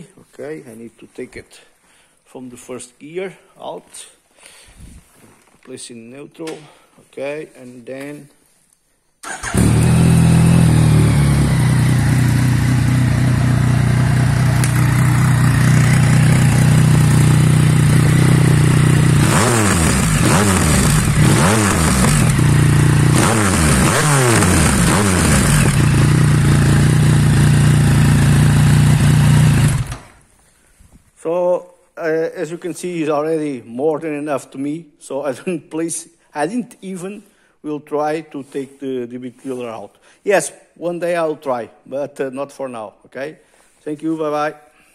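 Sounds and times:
motorcycle engine idling and revving: 9.3 - 30.2.

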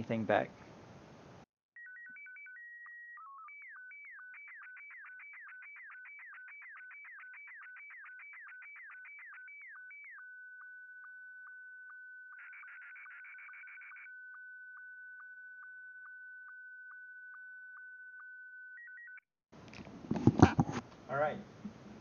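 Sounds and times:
high whistle with downward blips: 1.8 - 19.2.

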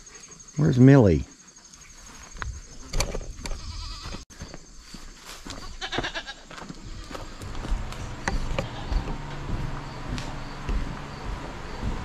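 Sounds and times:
goats bleating: 5.8 - 7.6, 8.4 - 9.2.

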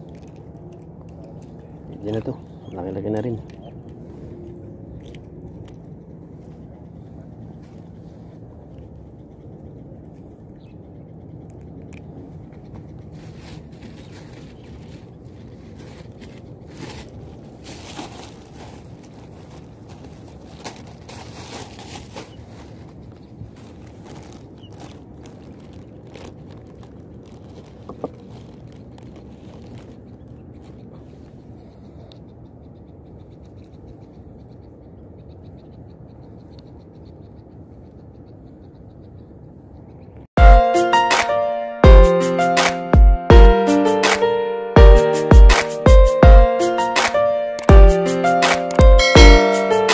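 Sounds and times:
steady low rumble: 0.0 - 40.7
wind: 0.0 - 49.9
plastic bag crinkling: 15.9 - 30.8.

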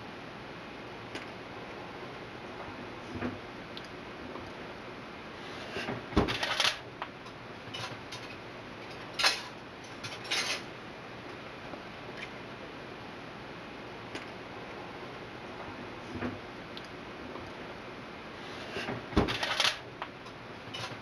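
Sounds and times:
kitchen clinking and rattling: 7.7 - 10.7.

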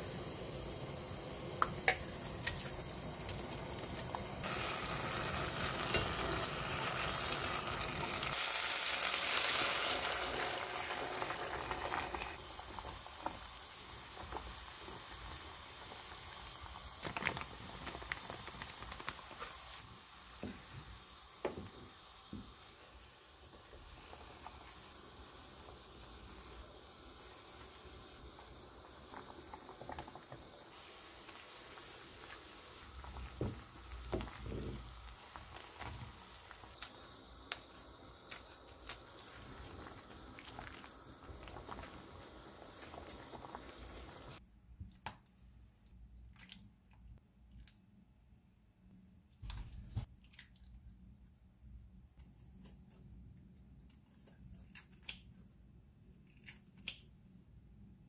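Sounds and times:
food sizzling in hot oil: 0.0 - 44.4
pot of soup boiling: 0.0 - 44.4.

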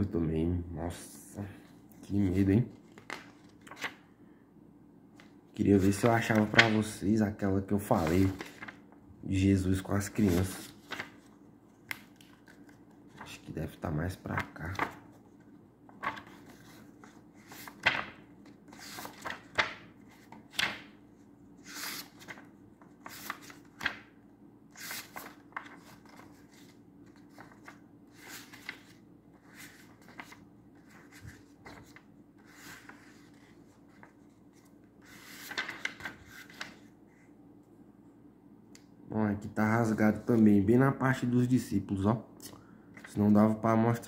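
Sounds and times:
book pages turning: 1.6 - 4.0, 5.2 - 7.0, 7.8 - 8.9, 10.0 - 13.6, 14.2 - 21.0, 21.6 - 24.1, 24.8 - 37.3.

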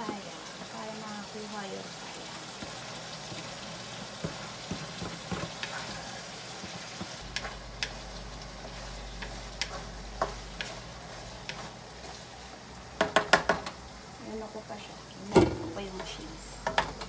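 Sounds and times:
meat sizzling in a wok: 0.0 - 17.0
wooden spatula scraping pan: 4.1 - 8.0, 8.6 - 12.6.

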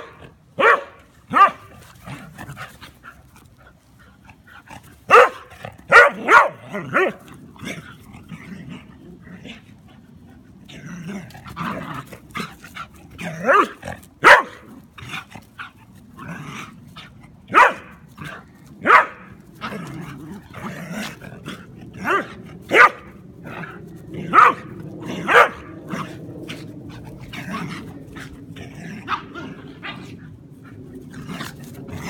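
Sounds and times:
dogs barking sharply: 0.0 - 1.7, 5.1 - 7.2, 13.5 - 14.6, 17.5 - 17.9, 18.8 - 19.3, 22.0 - 23.1, 24.3 - 24.7, 25.3 - 25.7
dog growling low: 6.6 - 32.0.

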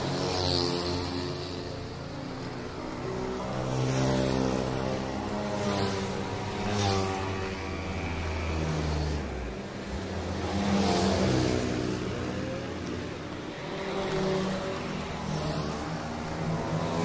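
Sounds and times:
vehicles passing: 0.0 - 17.0.

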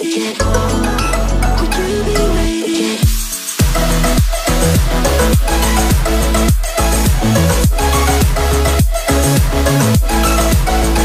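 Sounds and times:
steady bass: 0.4 - 11.0.

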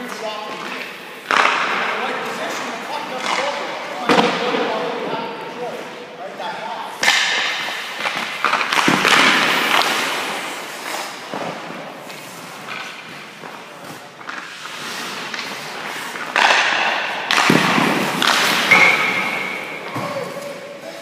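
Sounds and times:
hockey stick striking puck: 0.0 - 5.1, 6.9 - 20.6
puck hitting goalie pads: 0.0 - 5.1, 6.9 - 20.6
skate blades scraping ice: 7.4 - 21.0.

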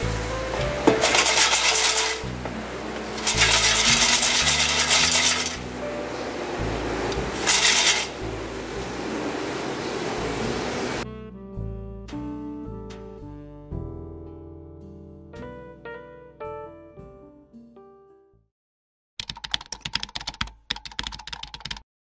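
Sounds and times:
plucked guitar and piano: 0.0 - 7.6, 11.0 - 14.5
background music: 0.0 - 18.4
rasping scraping noise: 0.6 - 2.4, 3.1 - 5.7, 7.3 - 8.2.

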